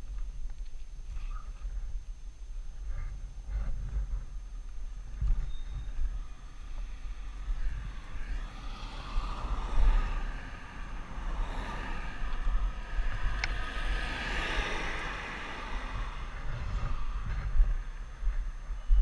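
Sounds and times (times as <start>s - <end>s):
wind rumbling on microphone: 0.0s - 19.0s
vehicle passing: 6.0s - 18.7s.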